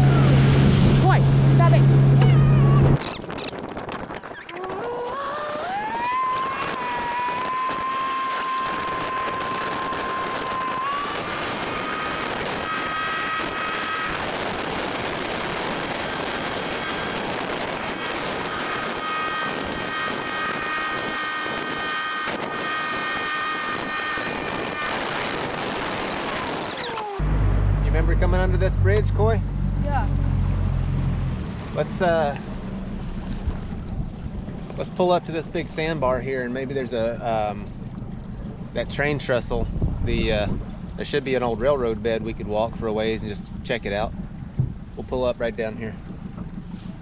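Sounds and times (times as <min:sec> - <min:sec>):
boat motor whining: 0:00.0 - 0:47.0
rushing noise: 0:23.8 - 0:31.7.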